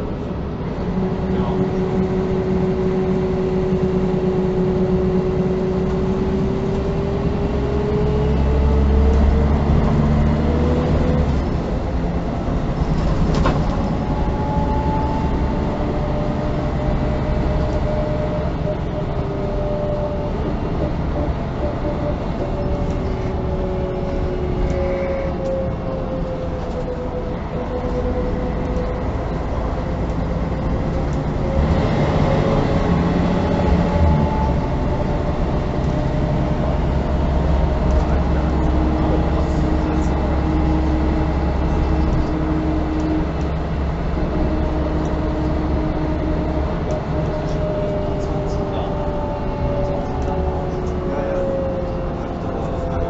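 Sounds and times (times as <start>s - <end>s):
bus engine rumbling: 0.0s - 53.0s.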